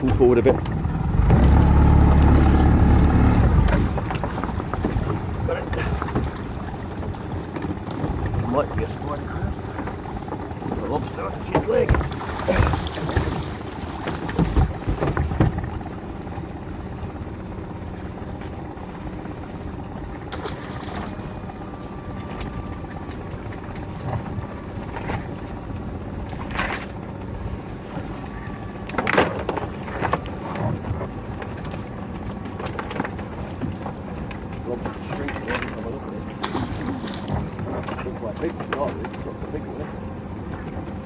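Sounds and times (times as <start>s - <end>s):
water splashing: 0.0s - 26.9s, 27.5s - 39.6s
boat motor running: 0.0s - 41.0s
wind: 0.0s - 41.0s
knocks and rattles of lobster pot: 9.8s - 15.8s.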